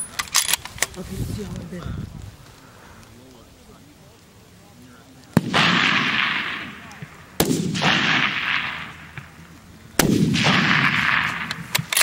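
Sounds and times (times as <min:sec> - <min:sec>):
rifle shots with echo: 0:05.3 - 0:12.0.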